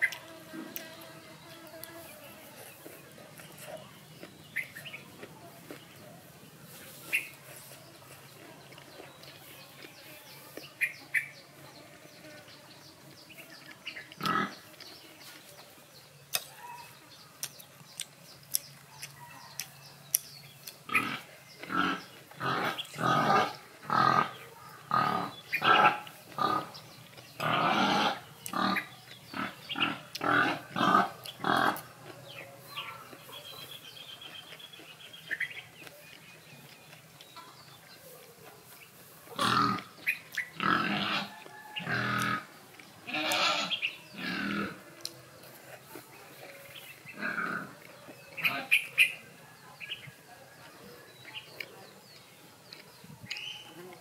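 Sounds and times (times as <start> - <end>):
animal grunting: 20.9 - 26.8, 27.4 - 31.9, 39.4 - 39.9, 40.5 - 42.5, 43.1 - 44.9, 47.1 - 47.8.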